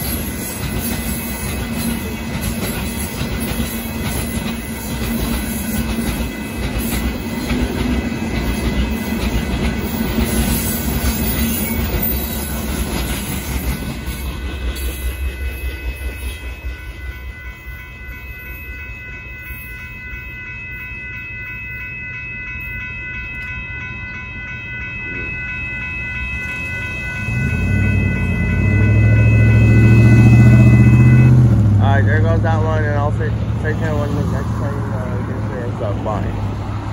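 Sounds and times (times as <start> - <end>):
train wheels clacking over rail joints: 0.0 - 15.3
crossing warning bell ringing: 0.0 - 36.9
car driving over crossing: 26.9 - 34.2.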